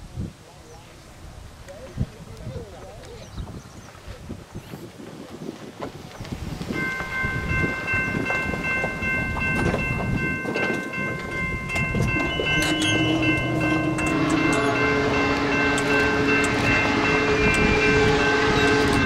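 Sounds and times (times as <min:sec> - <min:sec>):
train rumble: 0:05.8 - 0:19.0
railroad crossing bell ringing: 0:06.7 - 0:19.0
steam locomotive whistle: 0:11.7 - 0:19.0.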